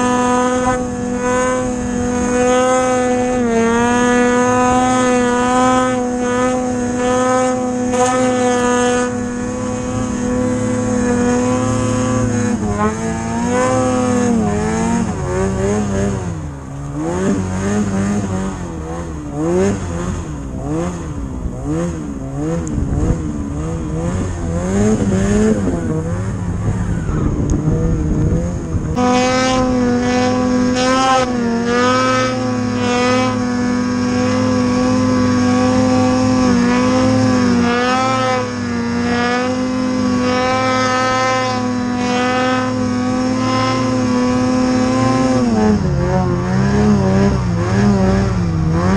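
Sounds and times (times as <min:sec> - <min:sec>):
snowmobile engine revving: 0:00.0 - 0:48.9.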